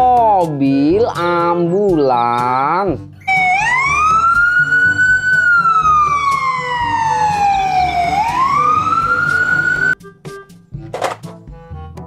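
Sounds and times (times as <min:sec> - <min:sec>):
ambulance siren wailing: 0:03.2 - 0:10.0.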